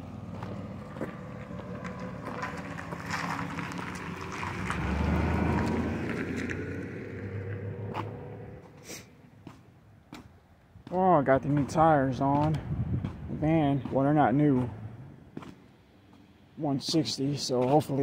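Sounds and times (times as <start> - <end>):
van engine running: 0.0 - 8.7
tyre noise: 0.0 - 15.6.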